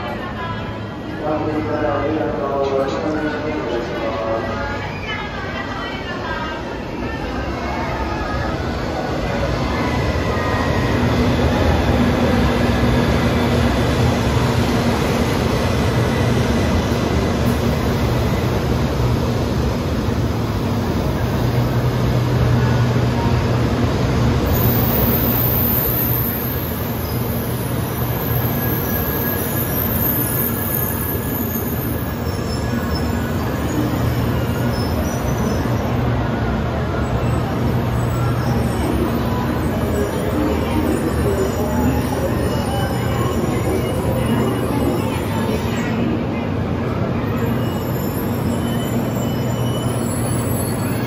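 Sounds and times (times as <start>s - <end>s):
faint high wheel squeal: 24.5s - 36.3s, 47.2s - 51.0s.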